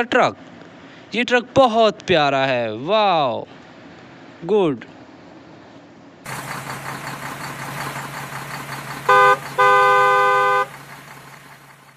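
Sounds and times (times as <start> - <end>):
truck engine humming: 3.5 - 11.9
truck horn: 8.9 - 11.0.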